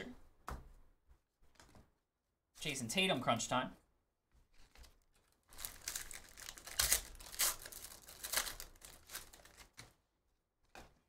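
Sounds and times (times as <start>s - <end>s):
wrappers tearing and crinkling: 4.6s - 9.9s.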